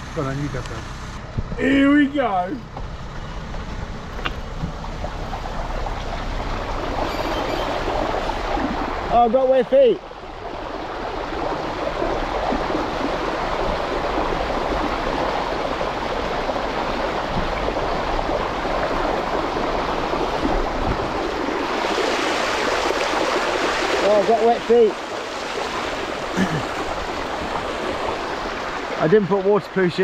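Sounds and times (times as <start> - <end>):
bike wheels splashing through water: 2.3 - 30.0.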